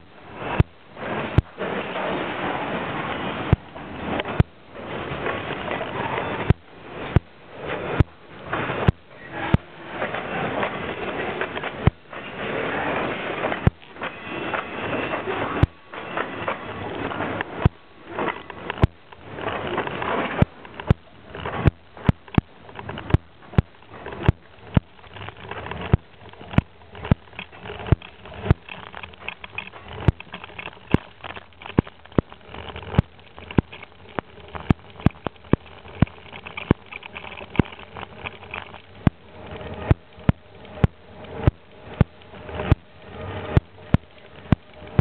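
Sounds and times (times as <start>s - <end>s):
bicycle rolling: 0.0s - 45.0s.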